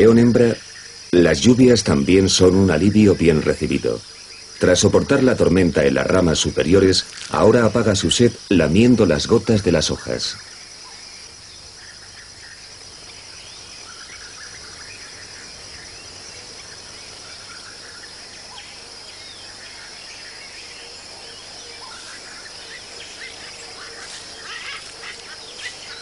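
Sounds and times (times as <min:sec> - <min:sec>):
high-pitched insect chorus: 0:00.0 - 0:26.0.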